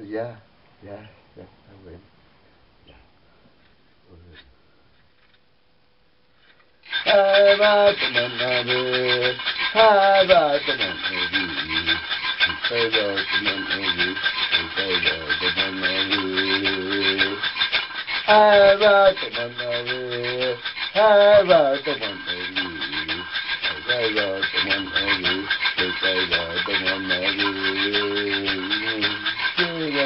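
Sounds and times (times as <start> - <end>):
handheld rattle shaken: 6.8 - 30.0
man chanting: 7.0 - 17.5, 18.2 - 30.0.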